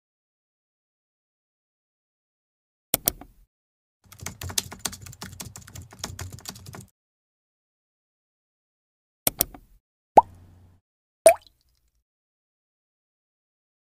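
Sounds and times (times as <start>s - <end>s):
computer keyboard typing: 4.1s - 6.9s.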